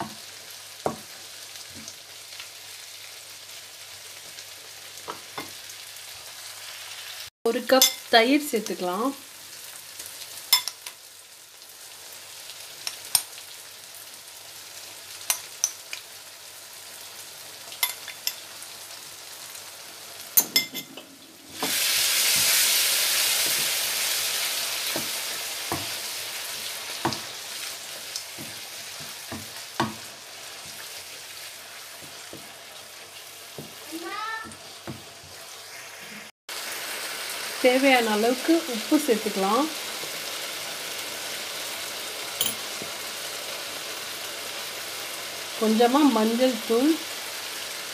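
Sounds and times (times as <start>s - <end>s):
sauce sizzling in a wok: 0.0s - 47.9s
spatula knocking and scraping a wok: 0.8s - 1.9s, 20.4s - 22.6s, 23.3s - 23.8s, 24.8s - 27.4s, 28.3s - 31.0s, 31.9s - 32.7s, 33.5s - 35.4s.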